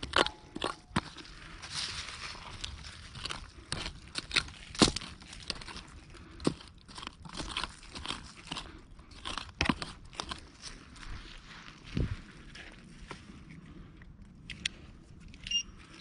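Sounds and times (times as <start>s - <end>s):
adze chopping into soil: 2.6s - 10.4s.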